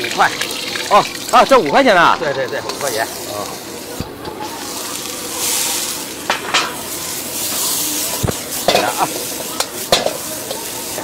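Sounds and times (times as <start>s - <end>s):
bean sprouts sizzling in a wok: 0.0s - 11.0s
metal ladle clinking against wok: 8.6s - 10.7s.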